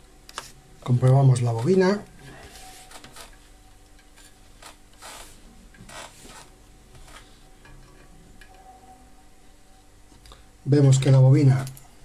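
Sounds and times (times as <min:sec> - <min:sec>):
metal probes scraping terminals: 0:04.0 - 0:08.6.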